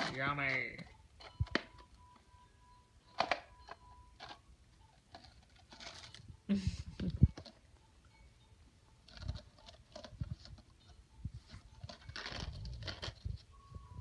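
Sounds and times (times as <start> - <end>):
plastic clicks and rustles: 3.1 - 6.3, 7.0 - 7.7, 9.0 - 13.5.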